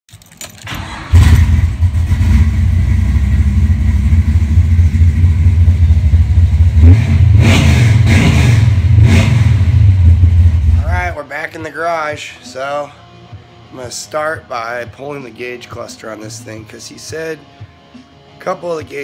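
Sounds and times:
car engine idling loudly: 0:01.1 - 0:11.1.

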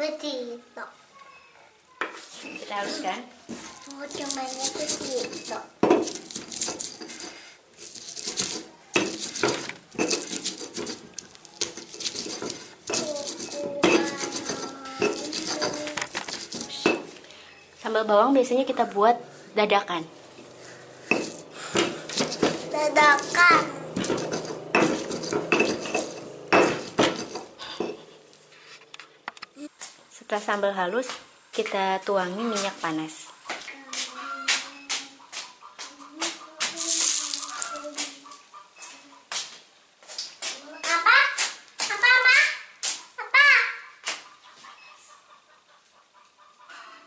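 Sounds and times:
stone pestle grinding in mortar: 0:04.1 - 0:17.2, 0:20.3 - 0:28.1.

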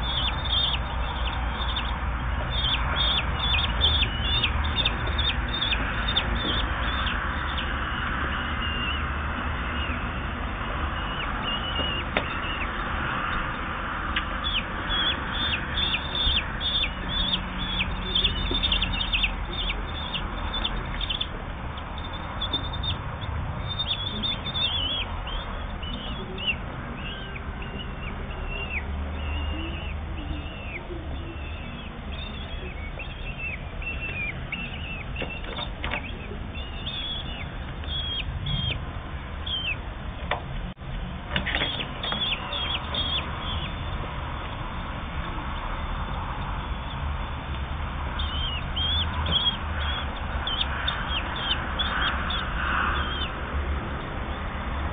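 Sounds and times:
bird chicks begging calls: 0:00.0 - 0:40.3, 0:41.1 - 0:54.9.

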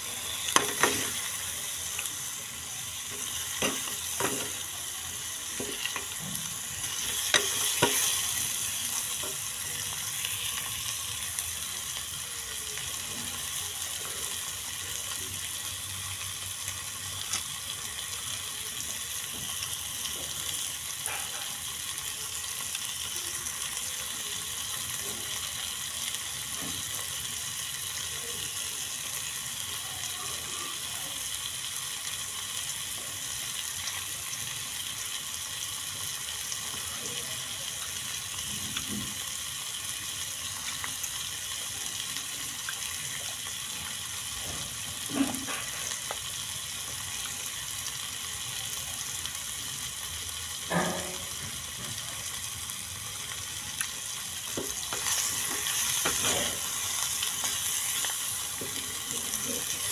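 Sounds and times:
chicken sizzling in a frying pan: 0:00.0 - 0:59.9
metal spoon stirring in pan: 0:00.2 - 0:02.4, 0:03.0 - 0:09.4, 0:54.5 - 0:58.8.

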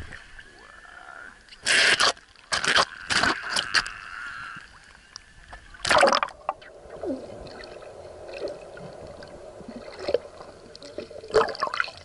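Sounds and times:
pool water splashing: 0:05.7 - 0:12.0
muffled underwater bubbling: 0:05.8 - 0:12.0.

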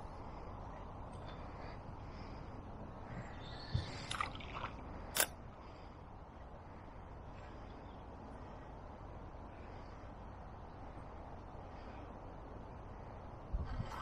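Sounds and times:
wind rumble on microphone: 0:10.1 - 0:14.0.

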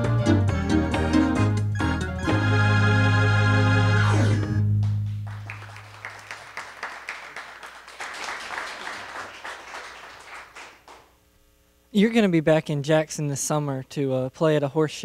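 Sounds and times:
electronic organ chord: 0:00.0 - 0:04.7
small group clapping: 0:04.8 - 0:11.2.

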